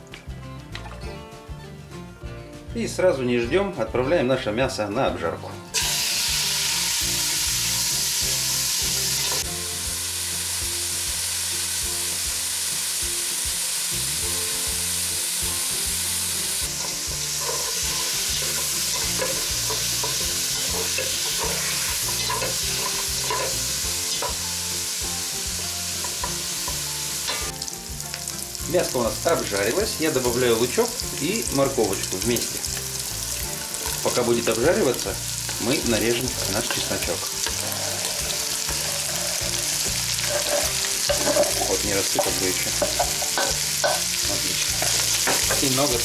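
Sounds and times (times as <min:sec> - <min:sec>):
meat sizzling in hot oil: 0:05.7 - 0:46.0
spatula scraping a pot: 0:16.7 - 0:24.4, 0:36.0 - 0:44.0.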